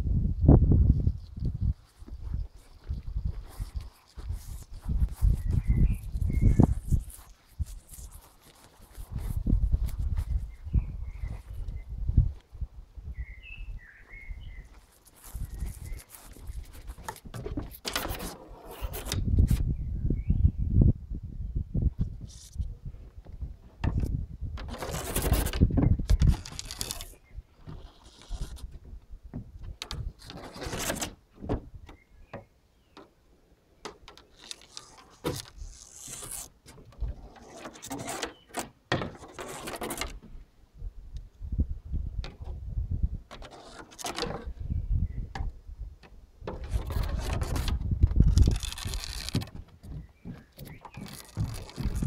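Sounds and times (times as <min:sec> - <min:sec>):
stick scraping and rustling: 0:01.9 - 0:10.6, 0:14.6 - 0:19.6, 0:24.6 - 0:28.9, 0:29.8 - 0:31.2, 0:34.1 - 0:40.3, 0:43.3 - 0:44.6, 0:46.4 - 0:52.0.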